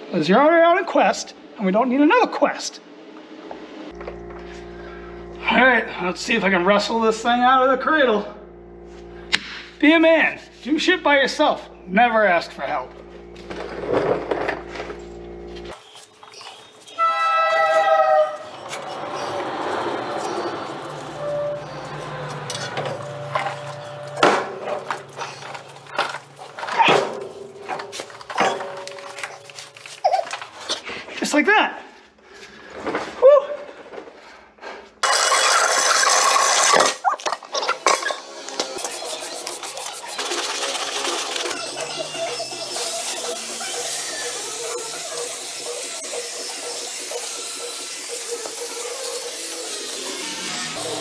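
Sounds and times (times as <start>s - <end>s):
steady low hum: 3.7s - 15.8s, 18.3s - 30.0s
pressure washer spraying: 38.6s - 51.0s.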